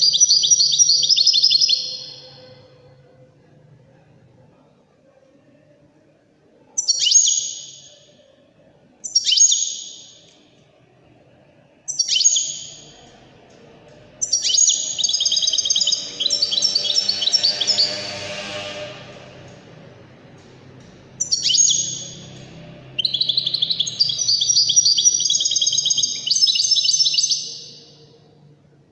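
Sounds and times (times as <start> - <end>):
rapid high bird twittering: 14.2 - 19.0, 21.2 - 28.0.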